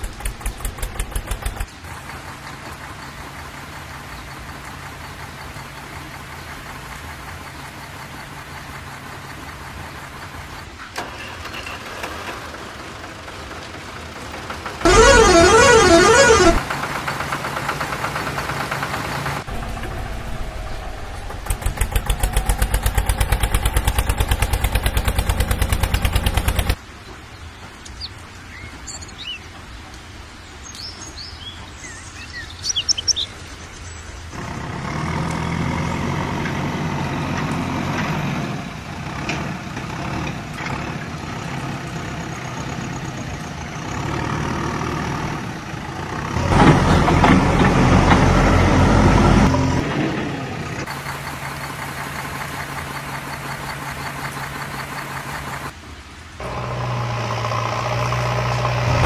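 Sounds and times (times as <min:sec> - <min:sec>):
fast even engine chugging: 0:00.0 - 0:02.9, 0:12.1 - 0:26.8
birds chirping: 0:00.0 - 0:11.6, 0:18.8 - 0:34.4
heavy vehicle engine running: 0:00.0 - 0:26.9, 0:32.2 - 0:59.0
low engine rumble: 0:00.0 - 0:28.4, 0:31.2 - 0:59.0.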